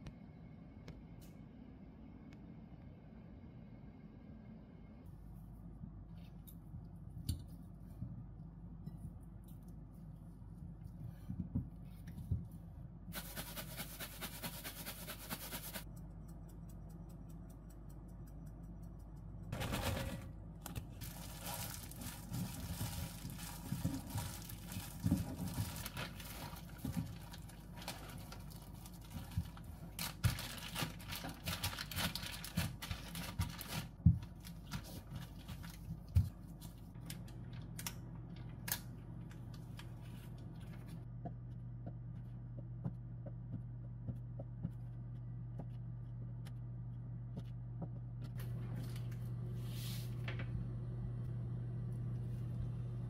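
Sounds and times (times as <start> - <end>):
steady low hum: 0.0 - 53.0
plastic bag crinkling: 20.9 - 35.9.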